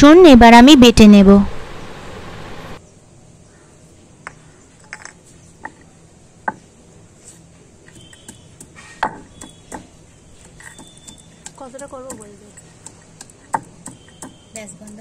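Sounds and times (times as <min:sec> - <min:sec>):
stone pestle crushing garlic: 0:07.9 - 0:15.0.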